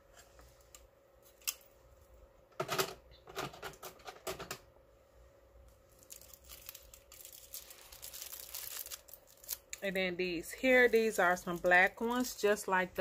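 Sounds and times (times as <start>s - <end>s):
plastic clattering and rustling: 2.6s - 4.6s
plastic wrap crinkling: 5.7s - 12.4s.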